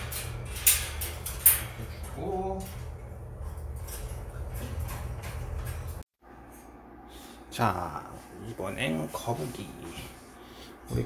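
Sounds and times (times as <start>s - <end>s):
metallic cage clacks: 0.0s - 6.0s
low room hum: 0.0s - 11.0s.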